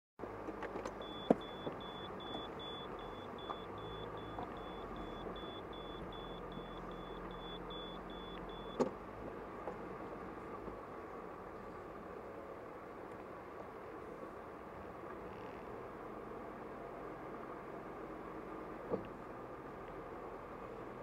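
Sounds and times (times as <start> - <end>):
car engine and cabin noise: 0.2 - 21.0
high electronic beeps: 1.0 - 8.8.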